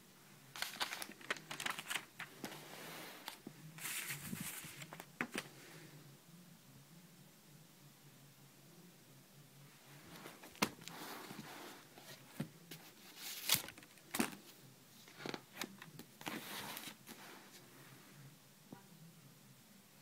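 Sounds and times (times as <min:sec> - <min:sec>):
paper pages rustling and flipping: 0:00.5 - 0:05.5, 0:10.1 - 0:14.4, 0:15.0 - 0:17.3.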